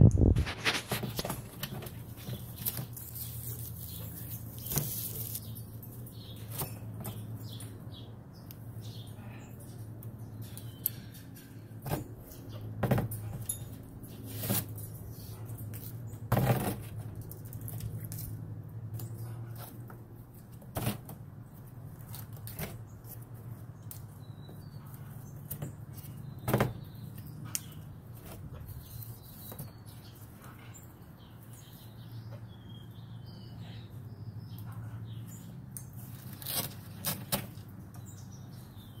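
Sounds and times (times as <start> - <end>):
bird tearing at cardboard: 36.0 - 37.6.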